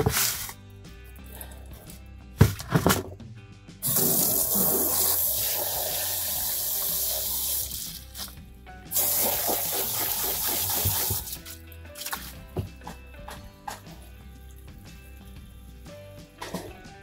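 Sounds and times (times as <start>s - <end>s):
background music: 0.0s - 17.0s
water spraying from hose nozzle: 3.8s - 12.2s.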